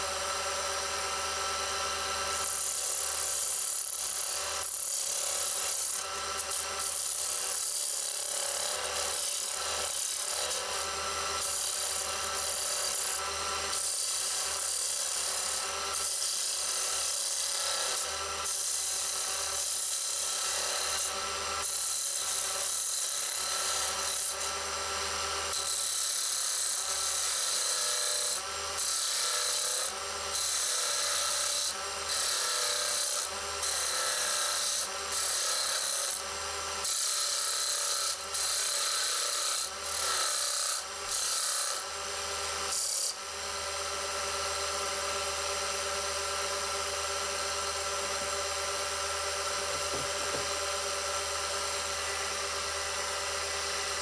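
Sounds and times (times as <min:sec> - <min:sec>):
tool scraping spinning wood: 0:49.6 - 0:51.2.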